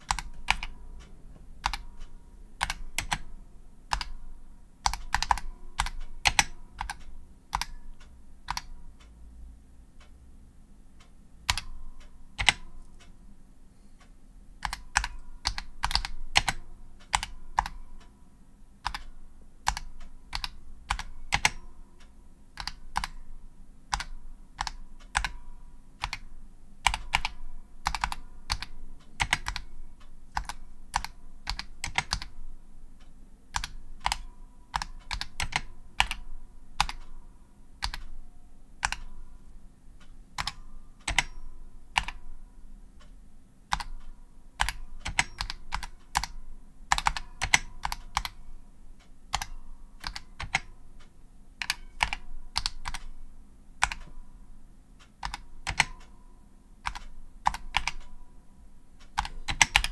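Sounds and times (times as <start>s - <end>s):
keyboard typing clacks: 0.0s - 8.8s, 11.4s - 13.1s, 14.6s - 18.1s, 18.8s - 21.7s, 22.5s - 23.3s, 23.9s - 32.4s, 33.5s - 37.2s, 37.8s - 38.2s, 38.8s - 39.3s, 40.3s - 42.3s, 43.7s - 48.5s, 49.3s - 50.8s, 51.6s - 53.2s, 53.8s - 54.2s, 55.0s - 56.2s, 56.8s - 58.3s, 59.0s - 59.9s.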